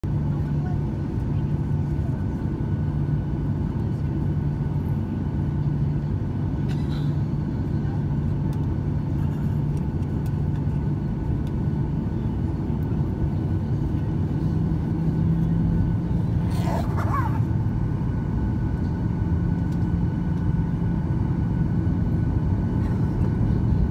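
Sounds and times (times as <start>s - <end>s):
airplane cabin low rumble: 0.0s - 23.9s
jet engine hum: 0.1s - 23.9s.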